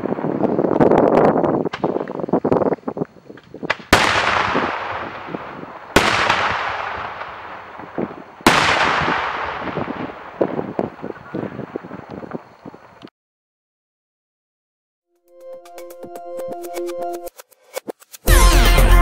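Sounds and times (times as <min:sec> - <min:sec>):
crackling firework pops: 0:00.0 - 0:13.1
loud firework bangs with echo: 0:03.6 - 0:12.4.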